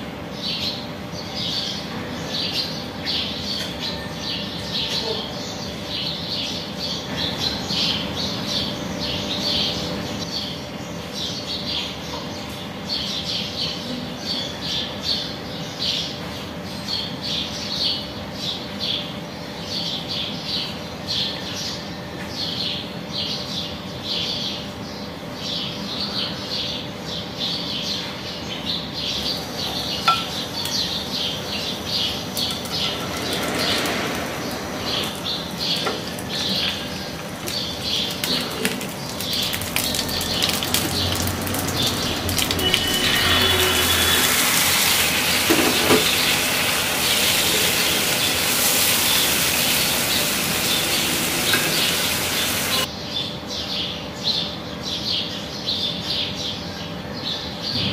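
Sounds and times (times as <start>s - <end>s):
oil sizzling in a frying pan: 34.4s - 43.0s, 43.6s - 52.9s.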